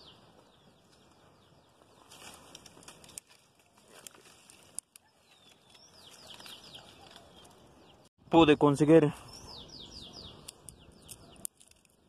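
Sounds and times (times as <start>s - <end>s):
leaves and branches rustling: 0.8s - 7.8s
dry twigs snapping: 2.0s - 7.6s, 10.4s - 12.0s.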